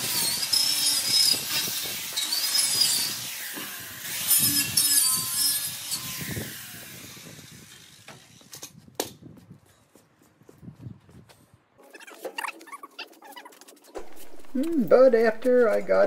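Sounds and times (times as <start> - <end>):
angle grinder wire brush on metal: 0.0 - 8.5.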